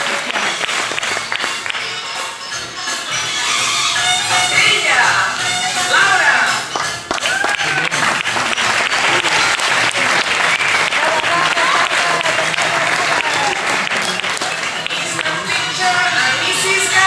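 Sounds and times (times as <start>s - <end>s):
audience clapping: 0.0s - 2.4s, 6.6s - 15.7s.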